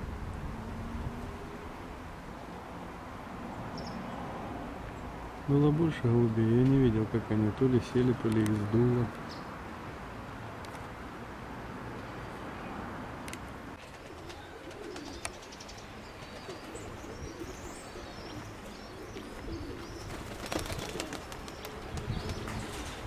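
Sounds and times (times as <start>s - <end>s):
pigeons cooing: 1.0s - 2.0s, 13.6s - 23.0s
small birds chirping: 3.6s - 4.2s, 8.0s - 9.6s, 13.9s - 23.0s.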